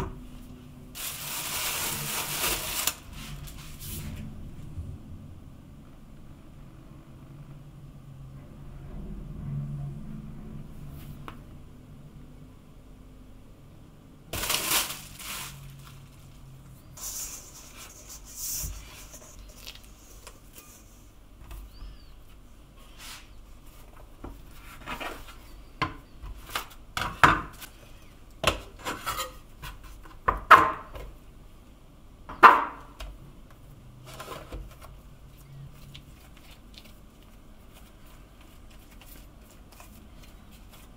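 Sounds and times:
rustling: 0.3s - 4.7s, 14.3s - 25.7s, 34.0s - 40.9s.

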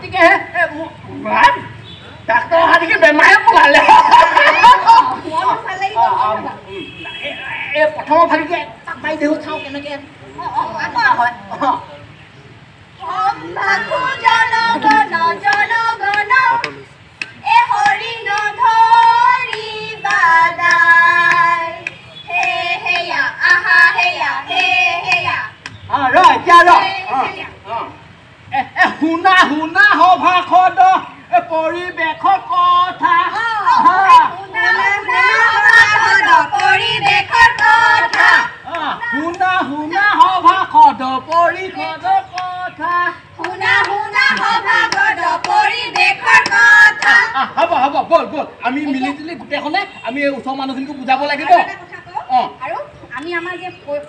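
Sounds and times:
young women singing through speaker: 12.9s - 27.7s, 29.8s - 47.7s
hand claps: 15.4s - 18.5s, 19.5s - 22.6s, 42.3s - 42.6s, 43.4s - 47.2s.

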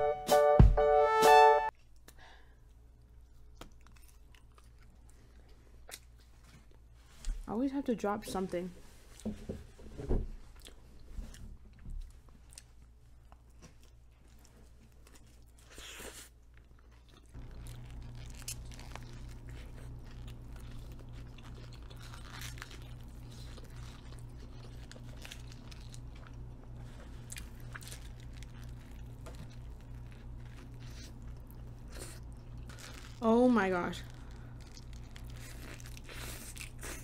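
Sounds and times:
chewing: 3.0s - 7.4s, 10.6s - 33.2s, 34.1s - 37.0s
steady low hum: 16.6s - 37.0s
paper wrapper rustling: 17.4s - 20.3s.

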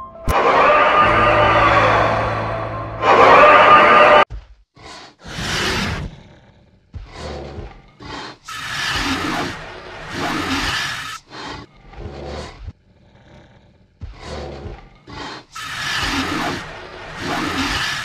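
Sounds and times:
dinosaur growls: 4.8s - 18.0s
dinosaur roars: 5.2s - 18.0s.

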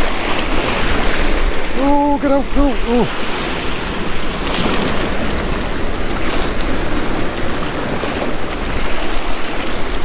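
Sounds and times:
surf breaking over rocks: 0.0s - 10.0s
wind rumbling on microphone: 0.0s - 10.0s.

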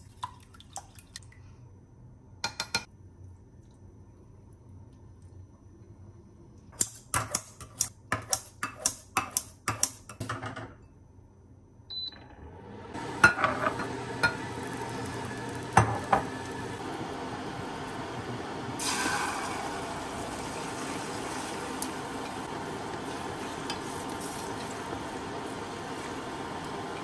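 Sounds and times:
oil hissing in a pan: 13.0s - 27.0s.

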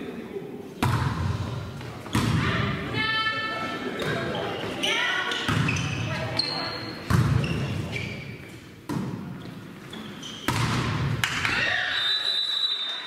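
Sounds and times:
volleyball hits echoing: 0.8s - 2.9s, 7.0s - 7.8s, 8.9s - 9.4s, 10.4s - 11.8s.

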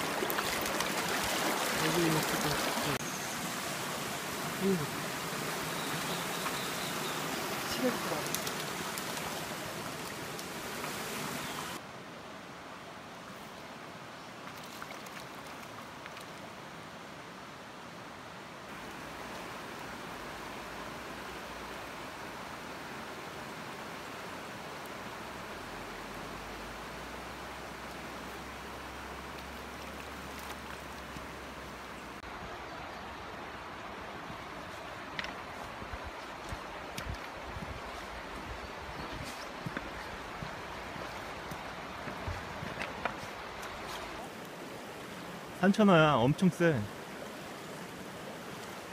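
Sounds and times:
stream water rushing over rocks: 0.0s - 48.9s
wide river flowing: 0.0s - 48.9s.

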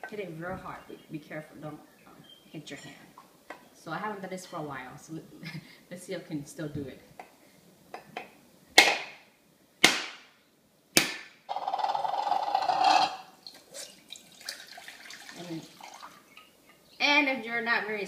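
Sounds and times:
cleaver cracking coconut: 8.8s - 9.1s, 9.8s - 10.2s, 11.0s - 11.9s
water pouring into ceramic bowl: 13.4s - 16.4s.

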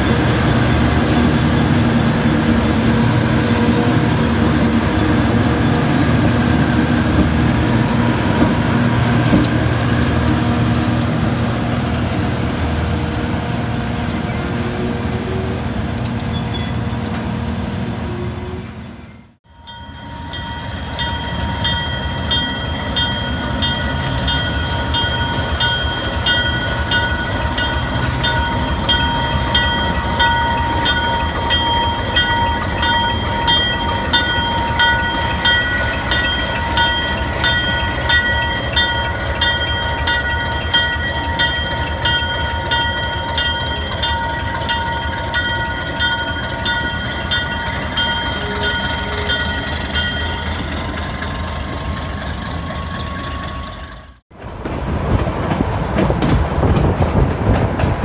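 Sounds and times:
diesel locomotive rolling slowly: 0.0s - 58.0s
bell ringing: 19.5s - 50.8s.

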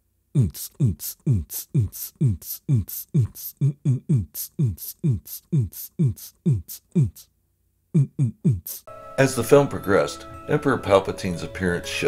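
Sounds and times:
sharp hi-hat hits: 0.4s - 3.6s.

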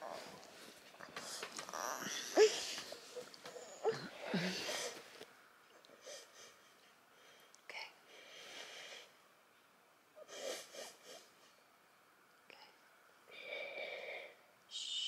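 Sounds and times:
girl sniffling: 10.2s - 11.3s.

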